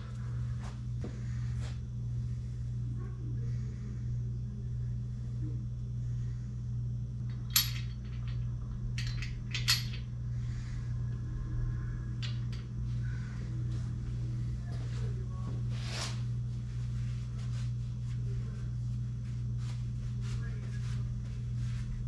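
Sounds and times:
low hum: 0.0s - 22.0s
metal clinks: 7.3s - 10.1s.

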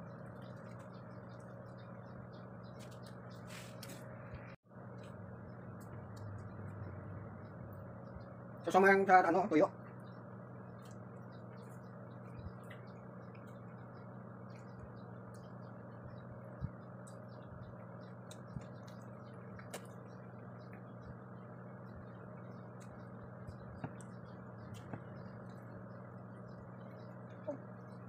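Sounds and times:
low electrical hum: 0.0s - 28.0s
soft eating clicks and smacks: 16.6s - 21.2s, 21.9s - 27.4s.

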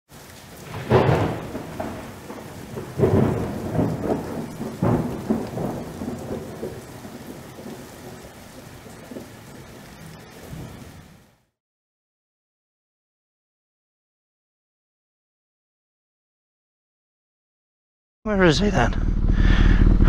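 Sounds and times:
thunder claps rumbling: 0.1s - 11.3s
steady rain: 0.1s - 11.6s.

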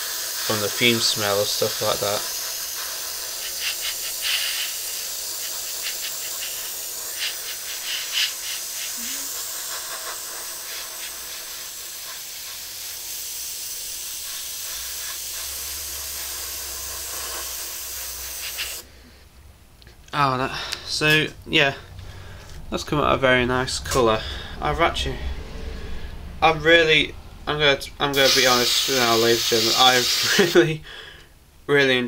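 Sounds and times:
airbrush hissing: 0.0s - 18.9s, 28.1s - 30.6s.

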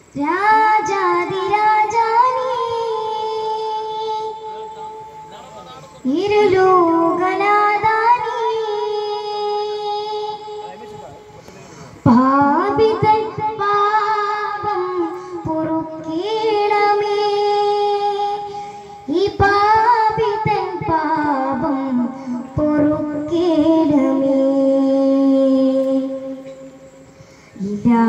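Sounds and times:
high voice singing unaccompanied: 0.0s - 11.0s, 12.0s - 26.9s, 27.6s - 28.0s.

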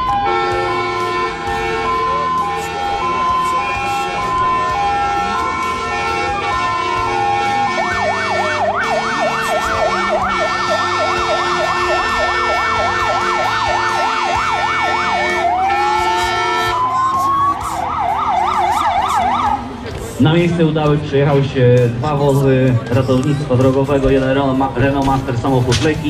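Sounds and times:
electronic siren yelp and wail: 0.0s - 19.8s.

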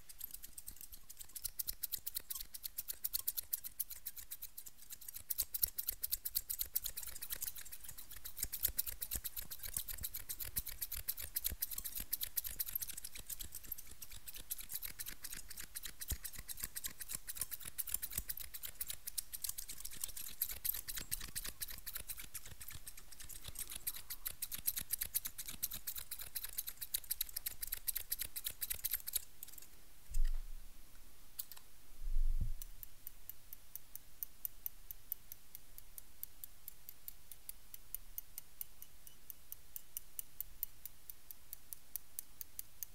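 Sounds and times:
light clicking: 0.0s - 30.4s, 31.4s - 31.7s
scissors snipping: 0.0s - 30.4s, 31.4s - 31.7s
dull low thumps: 32.0s - 32.6s.

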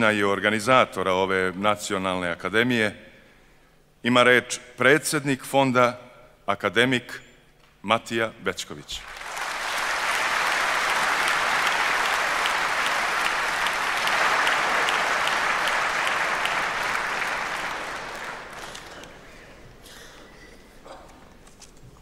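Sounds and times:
audience applauding: 9.0s - 19.7s.

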